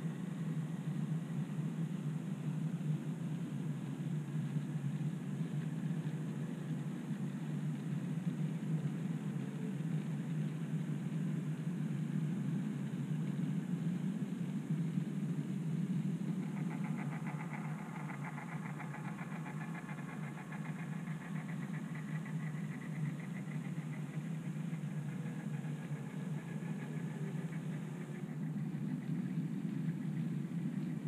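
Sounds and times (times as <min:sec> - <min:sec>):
model diesel engine drone: 0:15.5 - 0:31.0.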